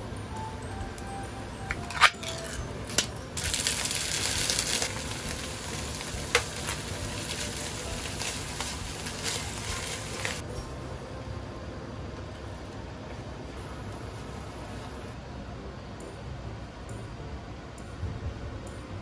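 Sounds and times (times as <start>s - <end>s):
food sizzling in frying pan: 3.4s - 10.4s.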